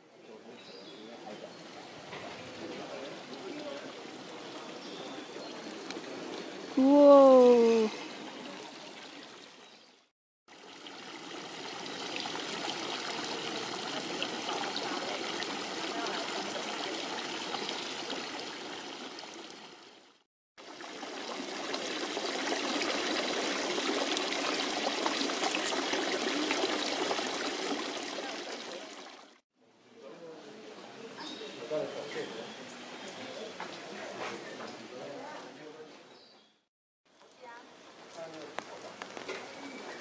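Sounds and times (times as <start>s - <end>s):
water running and trickling: 2.5s - 29.4s.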